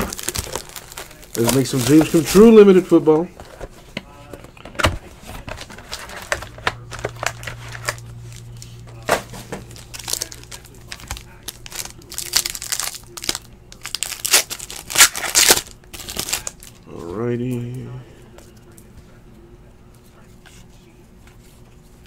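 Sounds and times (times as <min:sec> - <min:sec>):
foil pack crinkling and tearing: 0:00.0 - 0:03.6, 0:05.3 - 0:16.8
low steady hum: 0:00.0 - 0:22.0.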